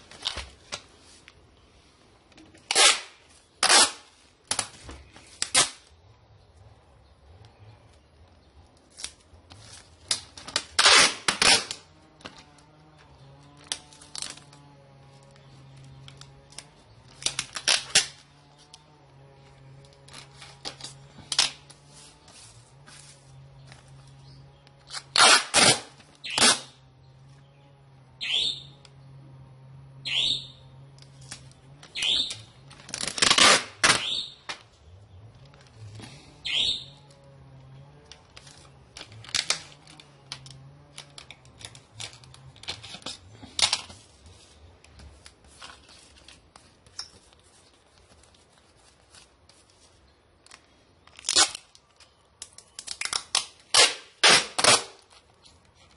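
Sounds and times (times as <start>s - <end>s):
packaging clicks and crinkles: 8.6s - 26.6s, 38.0s - 55.9s
short downward squeaks: 28.2s - 29.0s, 29.9s - 34.7s, 36.0s - 37.4s.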